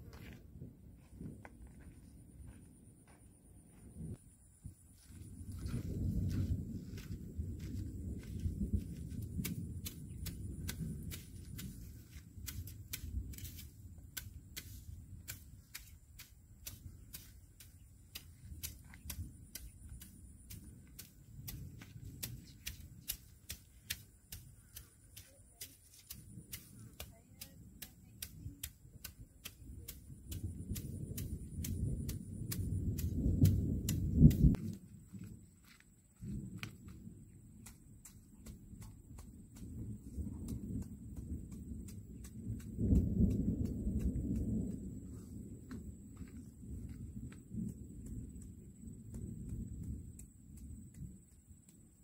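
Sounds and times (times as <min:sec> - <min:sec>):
wind buffeting microphone: 0:03.7 - 0:25.0, 0:26.1 - 0:35.4, 0:36.2 - 0:52.0
sharp ticks: 0:15.3 - 0:34.5.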